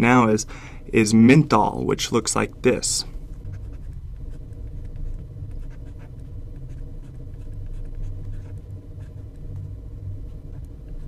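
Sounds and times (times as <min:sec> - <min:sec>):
steady low hum: 0:00.0 - 0:11.0
stylus scratching and tapping: 0:02.7 - 0:11.0.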